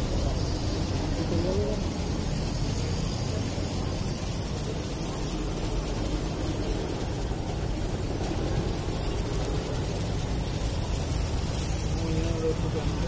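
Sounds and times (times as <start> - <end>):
hiss: 0.0 - 13.0
low rumble: 0.0 - 13.0.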